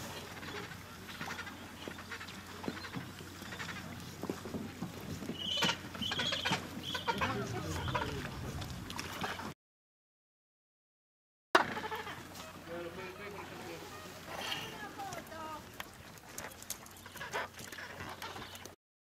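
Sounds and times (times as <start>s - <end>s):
crackly colony noise: 0.0s - 9.4s
penguins calling: 5.3s - 8.4s, 11.6s - 15.2s.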